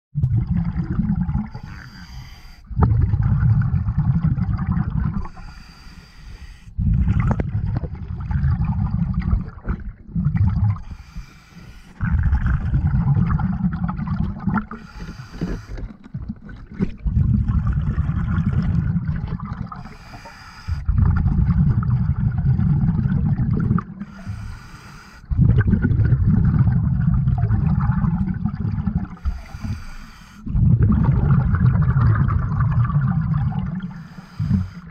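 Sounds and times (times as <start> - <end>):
diver breathing through regulator: 1.4 - 2.8, 5.2 - 7.1, 10.7 - 12.3, 14.6 - 16.0, 19.8 - 21.0, 24.0 - 25.4, 29.2 - 30.6, 33.8 - 34.9.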